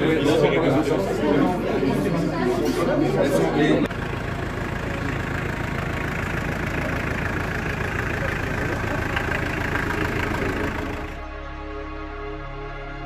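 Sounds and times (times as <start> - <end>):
vehicle engine idling: 3.8 - 11.2.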